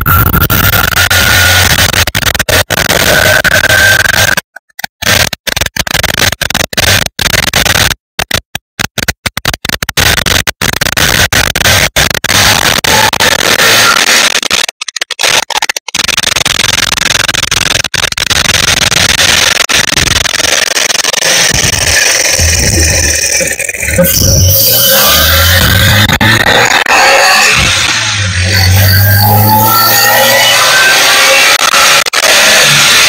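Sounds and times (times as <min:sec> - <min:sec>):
harsh loud engine rushing: 0:21.2 - 0:33.0.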